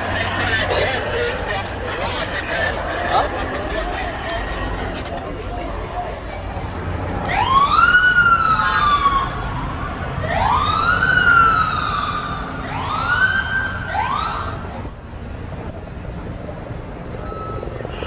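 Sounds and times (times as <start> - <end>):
emergency vehicle siren wailing: 7.0 - 18.0.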